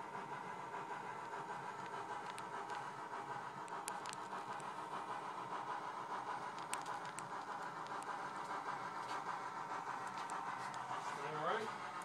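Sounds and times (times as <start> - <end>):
model steam locomotive sound: 0.0 - 12.0
faint clicks: 3.6 - 4.8, 6.4 - 8.2.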